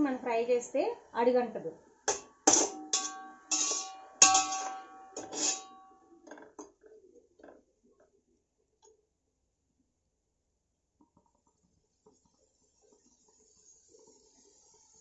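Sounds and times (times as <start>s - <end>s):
spoon scraping food in pot: 2.1s - 5.8s
metal spoon knocking on pot: 2.1s - 5.9s.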